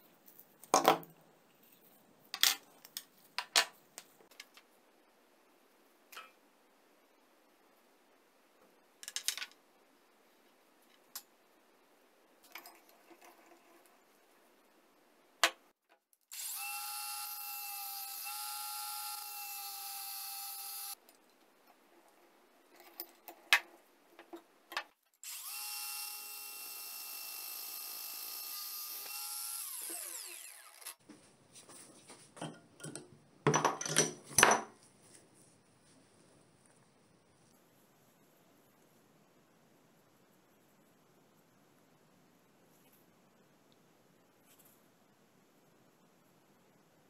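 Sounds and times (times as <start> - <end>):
power tool motor running: 16.4 - 21.0, 25.2 - 31.0
metal clicks and knocks: 32.4 - 34.8.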